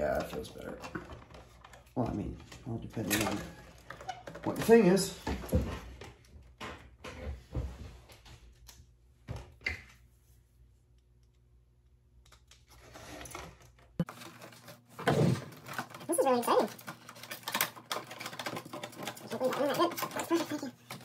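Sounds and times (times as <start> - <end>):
low background hum: 0.0 - 21.0.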